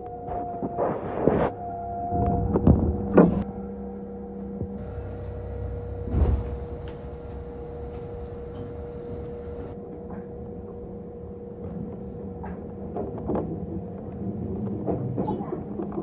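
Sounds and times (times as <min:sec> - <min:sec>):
train electric hum: 0:00.0 - 0:16.0
heavy thud of doors: 0:04.6 - 0:09.8
wheels clicking over rail joints: 0:04.7 - 0:10.4.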